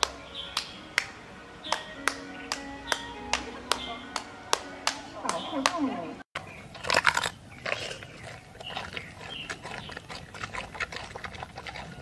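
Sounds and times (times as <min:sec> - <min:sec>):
panda chewing bamboo: 0:06.4 - 0:12.0.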